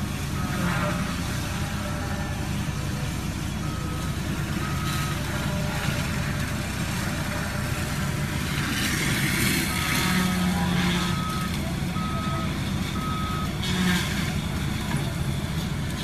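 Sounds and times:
diesel engine running: 0.0s - 16.0s
reversing alarm beeping: 0.3s - 8.3s, 9.4s - 13.9s.

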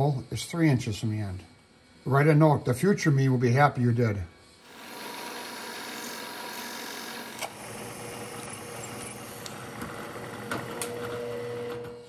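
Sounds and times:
drill bit boring plastic: 4.6s - 12.0s
milling machine spindle running: 4.6s - 12.0s.

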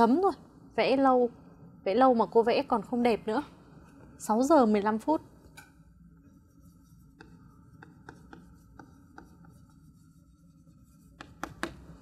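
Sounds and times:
pen or chalk writing on board: 6.4s - 12.0s.

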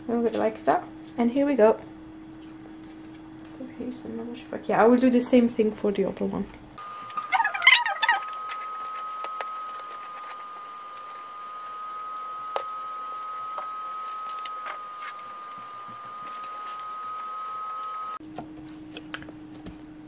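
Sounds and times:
high-pitched whine: 6.8s - 18.2s.

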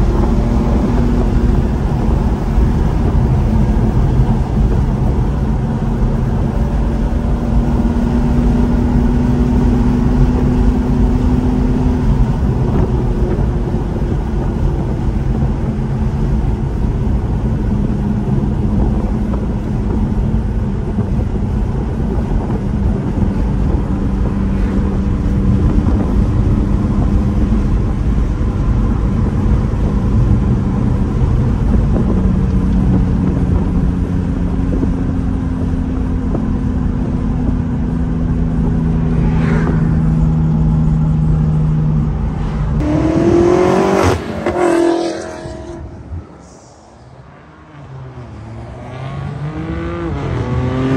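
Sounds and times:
car engine drone: 0.0s - 50.9s
road noise: 0.0s - 50.9s.

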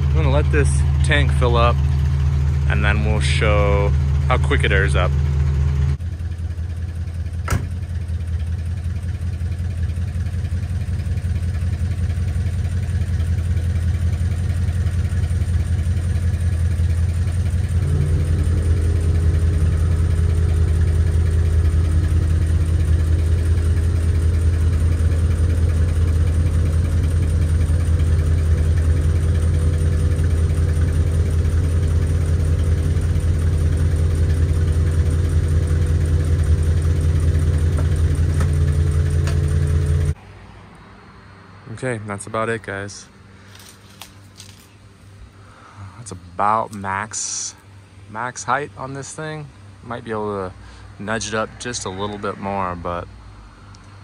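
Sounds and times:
car engine idling: 0.0s - 54.0s
air compressor humming: 11.8s - 40.2s.

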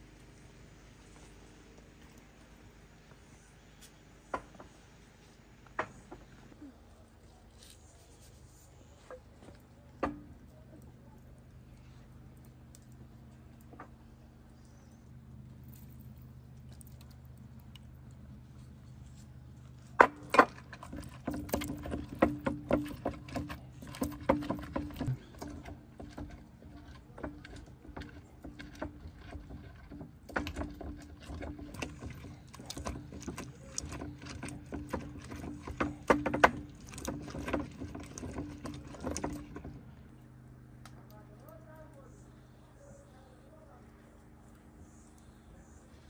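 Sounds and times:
steady low hum: 0.0s - 46.0s
utensils clicking and knocking: 20.0s - 39.8s.

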